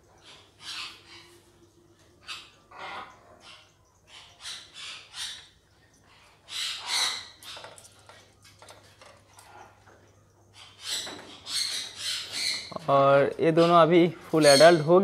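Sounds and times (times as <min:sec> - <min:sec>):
parrots squawking: 0:00.2 - 0:01.4, 0:02.2 - 0:08.0, 0:10.5 - 0:15.0.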